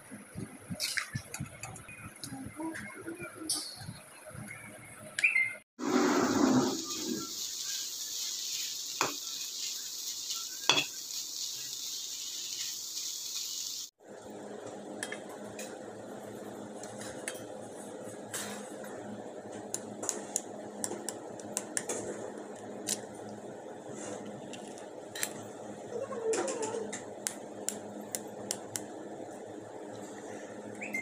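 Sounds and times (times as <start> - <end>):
onions sizzling in oil: 5.8 - 14.0.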